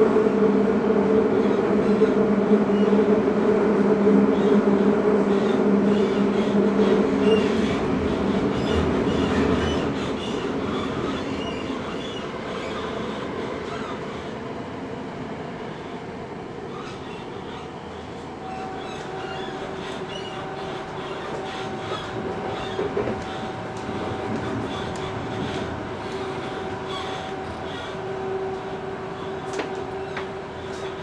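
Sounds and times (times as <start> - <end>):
train motor hum: 16.4 - 31.0.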